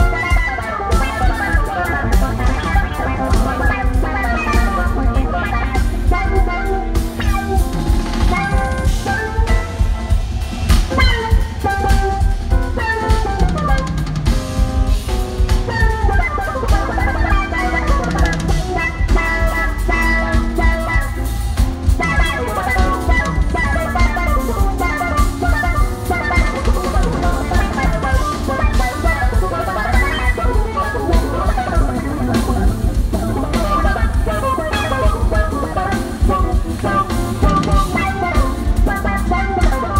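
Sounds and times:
drum kit: 0.0s - 39.9s
electric bass: 0.0s - 39.9s
keyboards: 0.0s - 39.9s.

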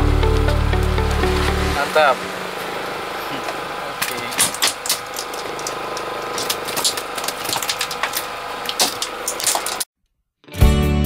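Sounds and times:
mechanical hum: 0.0s - 9.9s.

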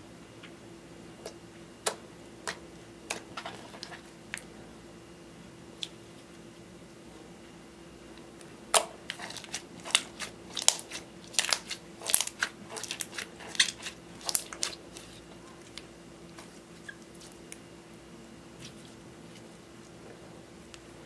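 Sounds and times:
slime crackling and popping: 8.7s - 15.2s.

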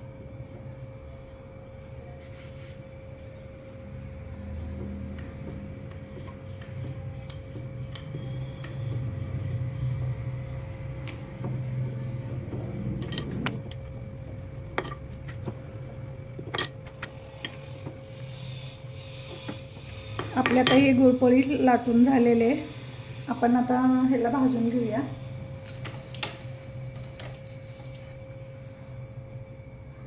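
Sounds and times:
sharp clicks and clinks: 13.0s - 18.1s.

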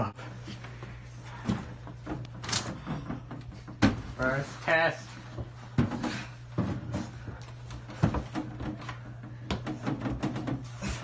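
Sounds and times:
wooden shelf knocking and bumping: 1.5s - 4.2s, 5.8s - 7.1s, 7.8s - 11.0s.

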